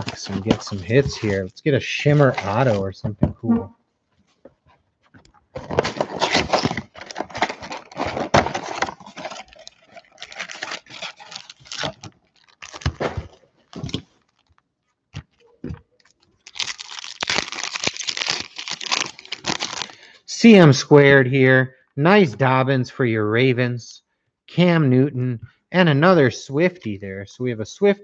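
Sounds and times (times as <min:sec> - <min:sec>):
foil packs crackling and rustling: 0:00.0 - 0:01.4, 0:05.5 - 0:14.6, 0:16.0 - 0:20.1
cardboard box tearing: 0:05.6 - 0:14.0, 0:16.5 - 0:19.8
foil pack ripping with crinkling: 0:05.6 - 0:14.6, 0:16.0 - 0:20.1.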